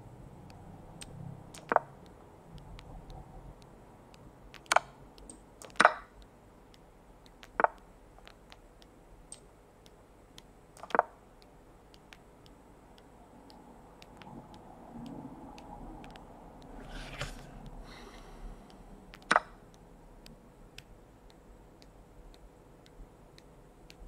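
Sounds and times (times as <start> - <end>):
faint ticks: 0.4 - 24.0
chess piece placement clicks: 1.5 - 1.9, 4.5 - 6.2, 10.4 - 12.2.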